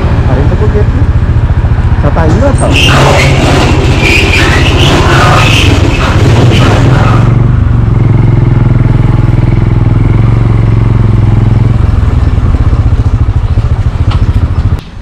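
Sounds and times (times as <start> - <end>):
motorcycle engine running: 0.0 - 15.0
rushing air noise: 2.4 - 9.2.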